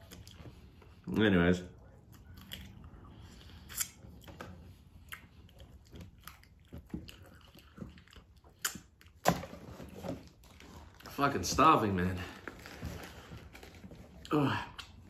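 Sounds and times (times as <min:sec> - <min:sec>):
person chewing crunchy food: 0:02.0 - 0:09.2.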